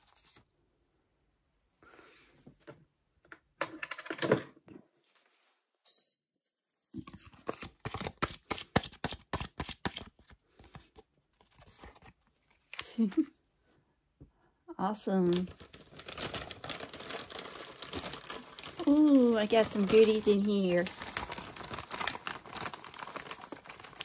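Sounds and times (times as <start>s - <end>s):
paper rustling from handling: 15.3s - 24.0s.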